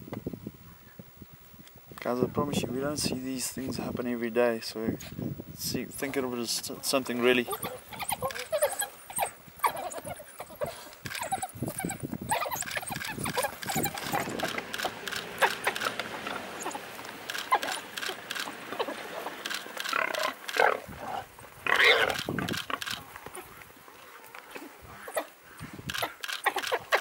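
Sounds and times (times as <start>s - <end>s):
animals scuffling: 5.8s - 27.0s
high animal cries: 7.2s - 23.5s.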